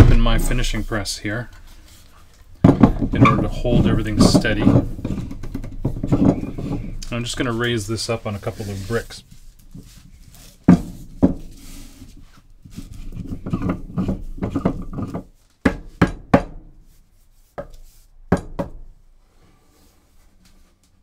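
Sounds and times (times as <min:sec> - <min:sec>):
faint rubbing: 0:00.0 - 0:14.4
wood knocking on wood and brick: 0:02.6 - 0:07.2, 0:10.7 - 0:11.5, 0:13.0 - 0:16.6.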